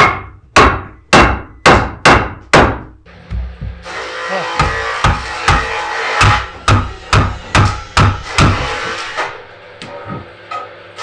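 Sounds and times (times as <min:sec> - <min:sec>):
hammer striking wooden board: 0:00.0 - 0:03.9, 0:04.6 - 0:09.3.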